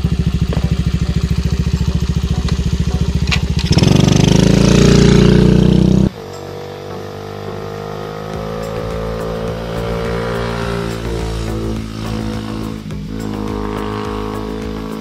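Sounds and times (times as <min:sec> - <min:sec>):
motorcycle engine idling and revving: 0:00.0 - 0:15.0.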